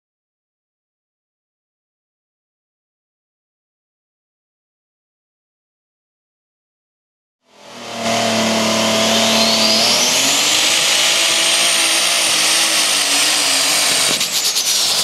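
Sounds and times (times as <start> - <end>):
high whine: 7.5 - 15.0
tractor engine under load: 7.6 - 15.0.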